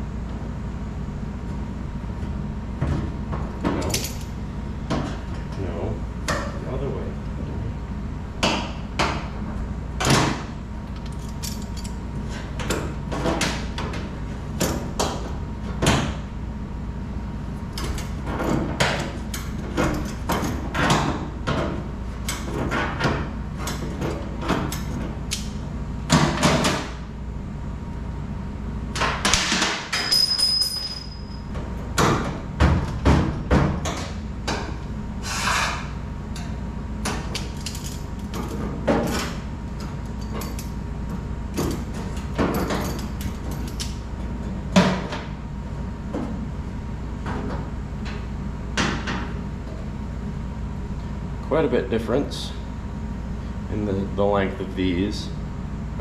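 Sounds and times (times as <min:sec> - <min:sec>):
steady low hum: 0:00.0 - 0:56.0
knocks and clanks of tools: 0:41.6 - 0:44.0.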